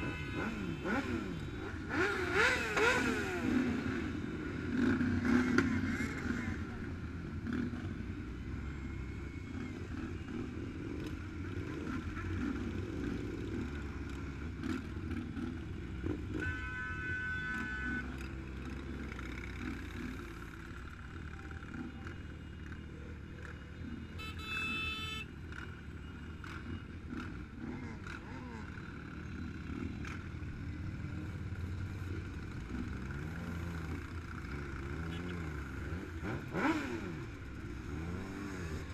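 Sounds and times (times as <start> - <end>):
motorcycle engine revving: 0.0 - 7.8, 26.4 - 38.9
motorcycle engines rumbling: 0.0 - 38.9.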